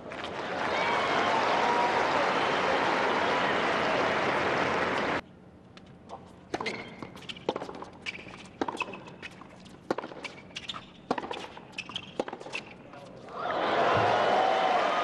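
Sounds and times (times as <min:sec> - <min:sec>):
crowd applause: 0:00.0 - 0:05.2, 0:13.4 - 0:15.0
racket striking tennis ball: 0:06.5 - 0:12.8
tennis ball bouncing: 0:06.5 - 0:12.8.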